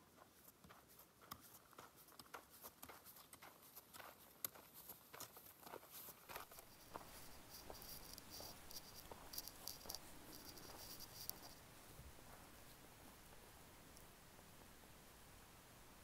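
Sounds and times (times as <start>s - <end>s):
footsteps on dirt trail: 0.0s - 11.6s.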